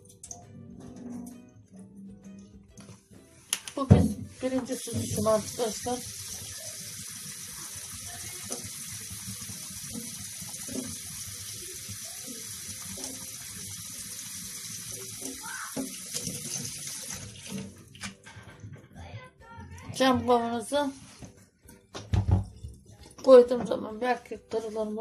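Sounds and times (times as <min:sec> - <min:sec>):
water pouring into steel sink: 0:04.7 - 0:18.0.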